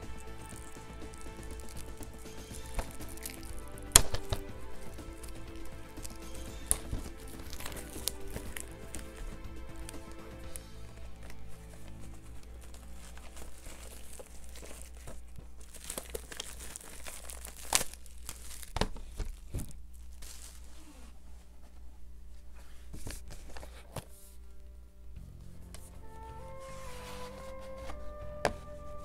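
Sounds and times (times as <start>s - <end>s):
packaging tearing and crinkling: 0.0s - 21.1s.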